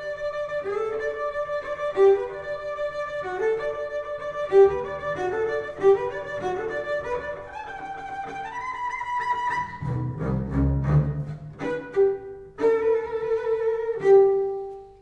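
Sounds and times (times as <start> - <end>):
bowed double bass: 9.2 - 14.4.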